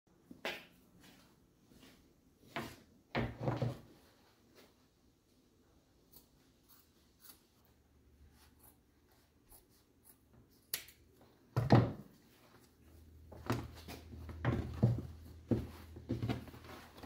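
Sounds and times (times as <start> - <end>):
knocks and rustling on workbench: 11.6 - 12.1, 13.4 - 16.6.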